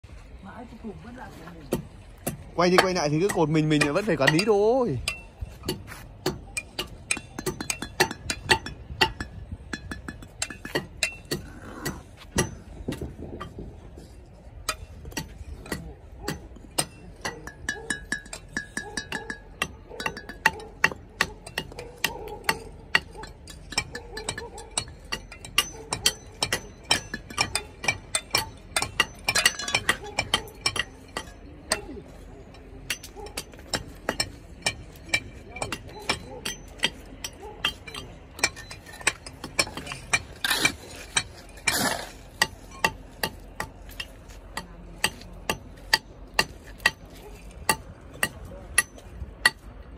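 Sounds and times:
trowel tapping and scraping bricks: 1.6 - 49.9
bricks clinking: 3.7 - 49.9.

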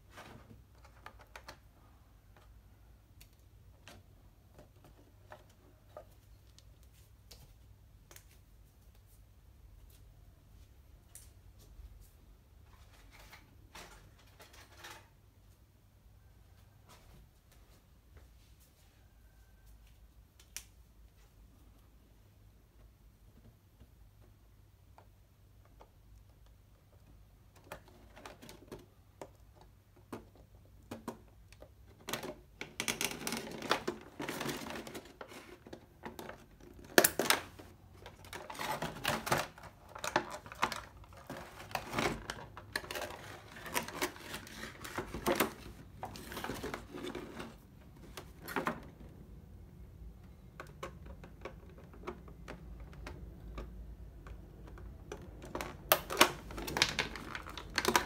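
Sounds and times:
plastic clicking and rustling: 0.1 - 7.4, 23.3 - 58.0.

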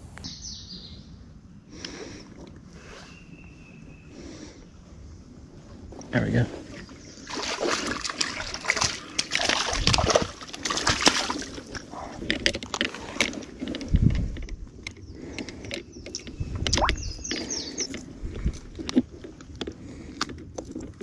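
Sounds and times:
water sloshing: 6.6 - 14.5
fish splashing and thrashing: 6.7 - 21.0.

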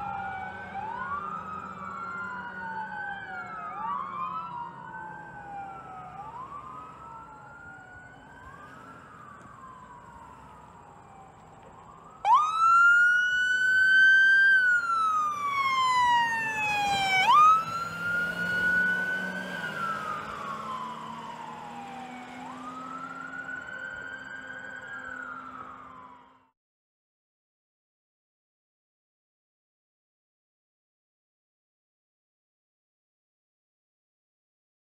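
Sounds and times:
loud close siren wailing: 0.0 - 26.5
faint overlapping sirens: 0.0 - 26.6.

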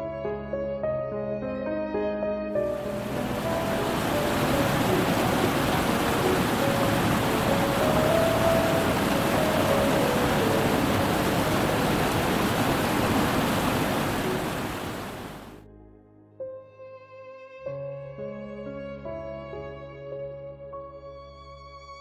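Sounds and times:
soft music: 0.0 - 22.0
stream rushing over rocks: 2.6 - 15.6.

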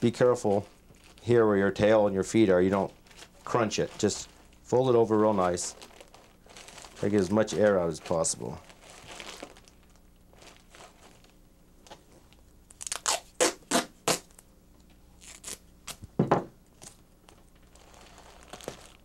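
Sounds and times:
duct tape ripping off roll: 8.7 - 10.0, 12.7 - 14.4, 15.2 - 16.1, 17.8 - 19.0.

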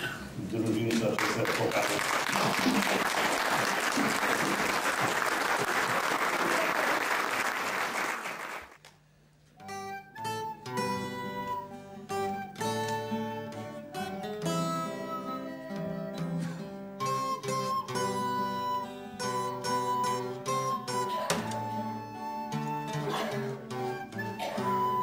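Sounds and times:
audience applauding: 0.8 - 8.8
acoustic guitar picking notes: 9.6 - 25.0.

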